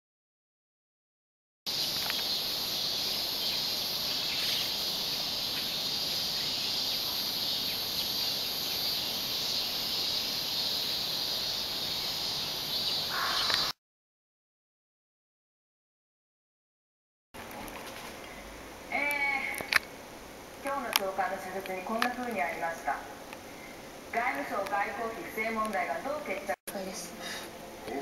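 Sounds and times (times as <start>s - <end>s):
insect chorus: 1.7s - 13.8s.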